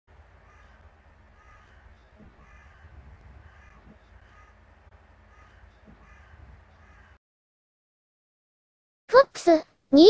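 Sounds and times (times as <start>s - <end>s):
low background rumble: 0.1s - 7.2s
crow cawing: 0.4s - 7.2s.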